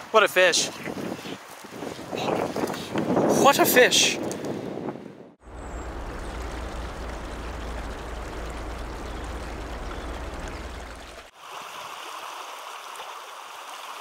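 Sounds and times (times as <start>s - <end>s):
low rumble: 5.4s - 11.3s
river water rushing: 5.4s - 14.0s.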